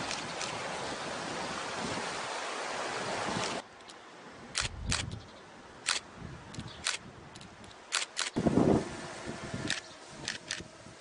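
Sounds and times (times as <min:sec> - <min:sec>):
sea waves washing onto beach: 0:00.0 - 0:04.6
sharp clicks: 0:04.6 - 0:05.2, 0:05.8 - 0:08.4.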